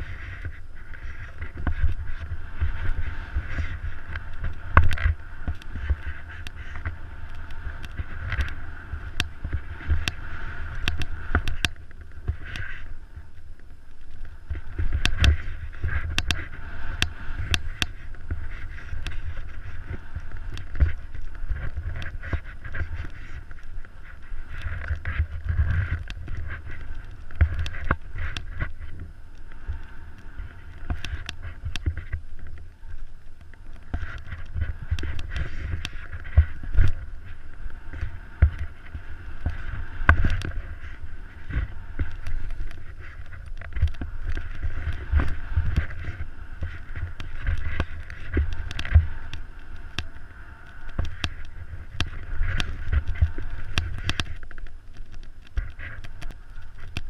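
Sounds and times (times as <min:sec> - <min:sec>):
skis hissing through snow: 0:00.0 - 0:11.5, 0:14.6 - 0:30.9
clicks and knocks from skis: 0:00.0 - 0:57.0
wind buffeting microphone: 0:00.0 - 0:57.0.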